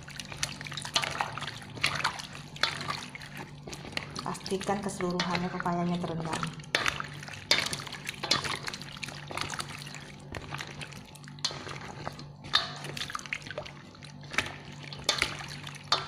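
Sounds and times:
water sloshing and dripping: 0.0s - 16.0s.

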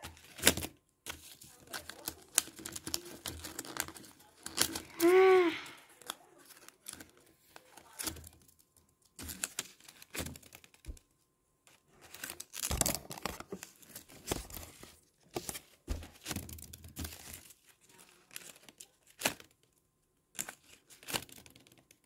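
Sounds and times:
paper rustling and crinkling: 0.0s - 11.0s, 11.7s - 19.6s, 20.4s - 22.0s.

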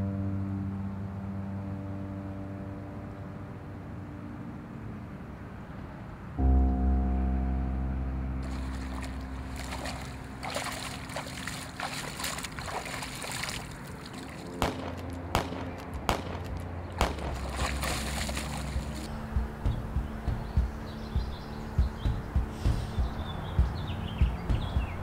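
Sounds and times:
low held orchestral chord: 0.0s - 5.4s, 6.4s - 25.0s
shallow water sloshing: 8.4s - 15.1s, 17.0s - 19.2s
feet splashing through water: 8.4s - 19.6s.

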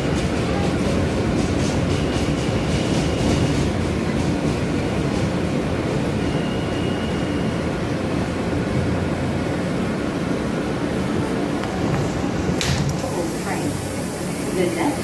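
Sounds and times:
subway train rumble: 0.0s - 15.0s
faint high squeal: 6.2s - 7.7s.

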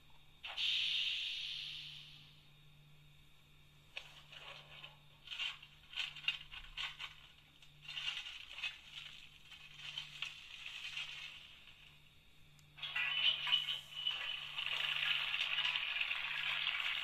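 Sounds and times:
faint hum: 0.0s - 17.0s
model train clicking on track: 12.8s - 17.0s.

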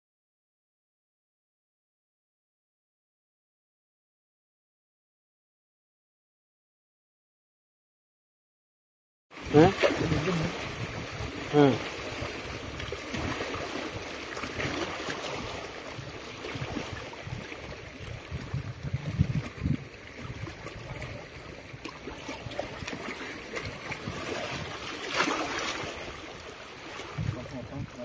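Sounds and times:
small waves lapping: 9.3s - 28.0s
wind on microphone: 9.4s - 26.3s, 27.0s - 28.0s.

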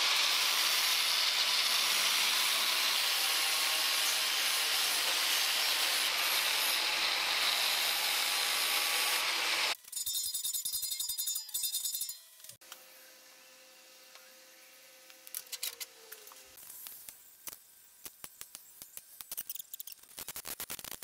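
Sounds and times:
angle grinder grinding steel: 0.0s - 12.6s.

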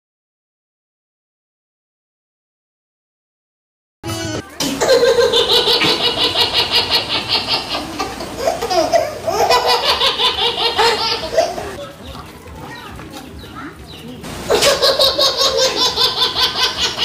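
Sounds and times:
hearty laughter: 4.6s - 11.8s, 14.4s - 17.0s.

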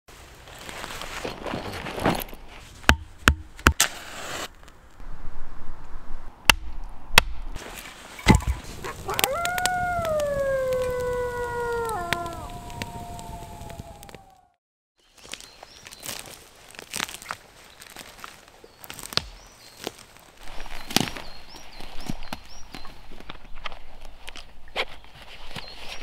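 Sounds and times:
higher wolf howl: 8.8s - 14.6s
wolf howling: 8.8s - 14.6s.

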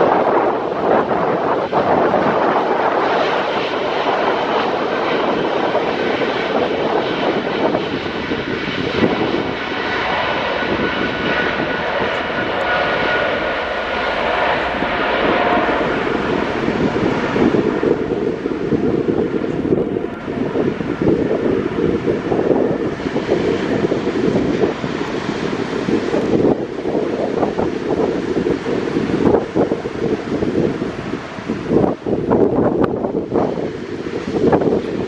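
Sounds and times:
jet engines running: 0.0s - 35.0s.

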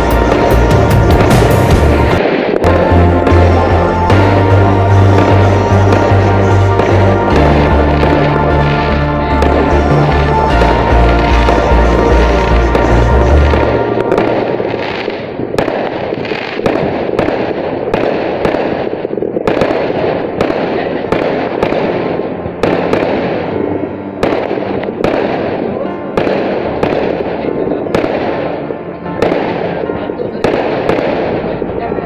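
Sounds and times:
fireworks bangs: 0.0s - 32.0s
fireworks crackle and hiss: 11.4s - 22.0s.

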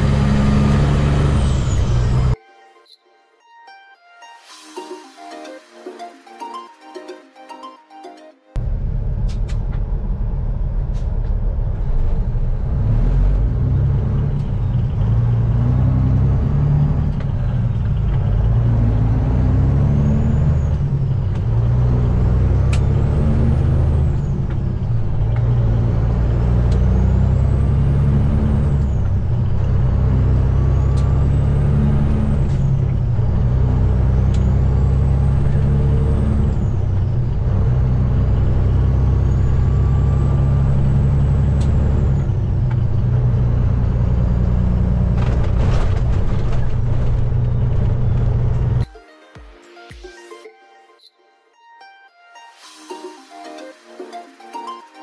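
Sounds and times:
diesel truck engine pulling hard: 0.0s - 2.4s, 8.6s - 48.8s.

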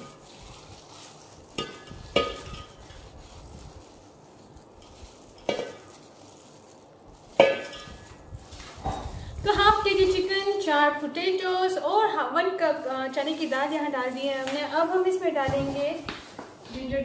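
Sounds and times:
dry lentils poured and scraped: 0.0s - 9.0s
metal bowl clinking on pot: 7.4s - 8.0s.

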